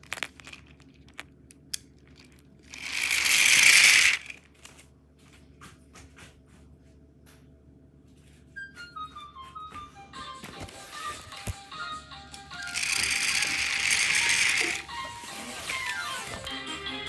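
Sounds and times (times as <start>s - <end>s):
plastic toy clicks: 2.7s - 4.4s, 12.6s - 14.9s
toy train whirring past: 2.7s - 4.4s, 12.3s - 17.0s.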